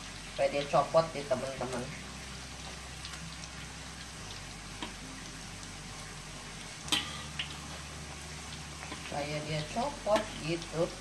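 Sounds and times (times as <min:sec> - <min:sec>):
fritters sizzling in hot oil: 0:00.0 - 0:11.0
metal spatula tapping a wok: 0:06.9 - 0:07.2, 0:10.1 - 0:10.6.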